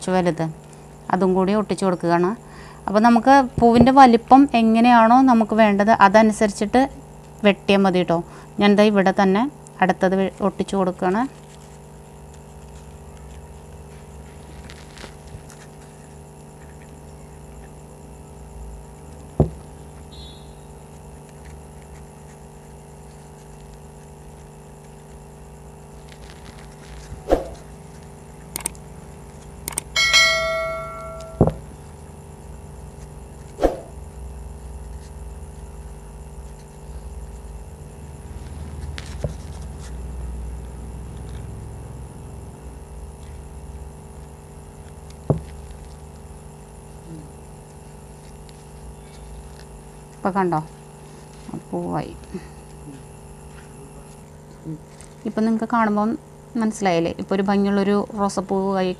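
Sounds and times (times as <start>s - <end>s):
steady hum: 0.0s - 58.9s
short bell-like ring: 30.0s - 31.5s.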